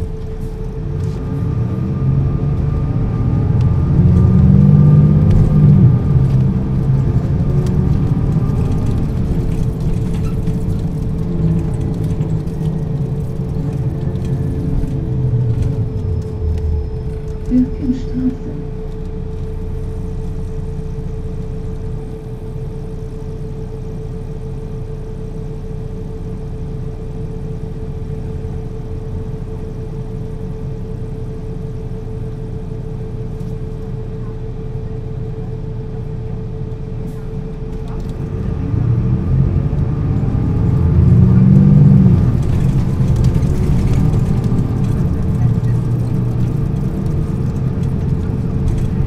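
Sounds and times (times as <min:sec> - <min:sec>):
bus engine revving up: 0:00.0 - 0:21.9, 0:35.1 - 0:49.0
bus diesel engine idling: 0:00.0 - 0:49.0
engine whine: 0:00.0 - 0:49.0.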